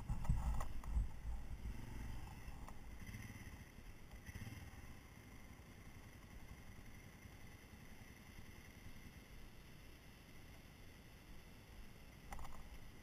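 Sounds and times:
faint dirt bike engine: 0.0s - 13.0s.

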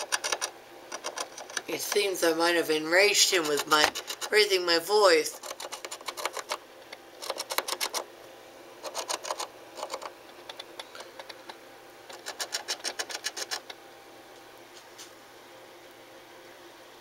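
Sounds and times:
animal scratching inside a wall: 3.2s - 4.4s, 5.3s - 6.6s, 8.8s - 10.1s, 12.1s - 13.7s.

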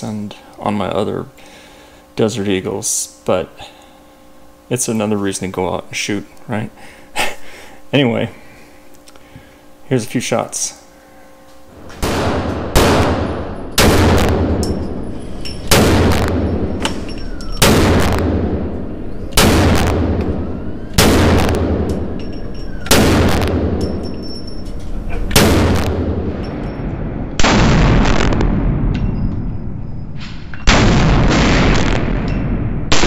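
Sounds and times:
pistol shots echoing: 12.0s - 15.0s, 15.6s - 23.9s.

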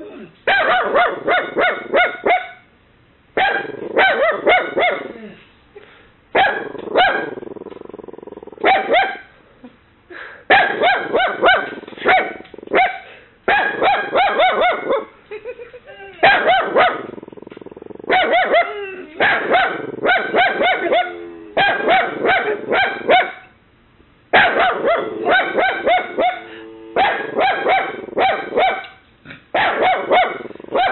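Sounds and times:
puppy barking shrilly: 0.5s - 2.6s, 3.4s - 5.2s, 6.4s - 7.4s, 8.6s - 9.3s, 10.5s - 15.2s, 16.2s - 17.2s, 18.0s - 23.5s, 24.3s - 30.9s.

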